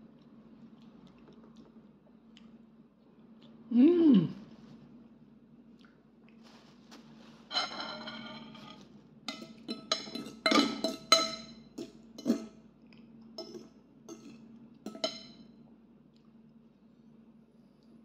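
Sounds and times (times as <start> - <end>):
cutlery clinking on ceramic bowl: 7.5 - 12.6, 13.4 - 15.5.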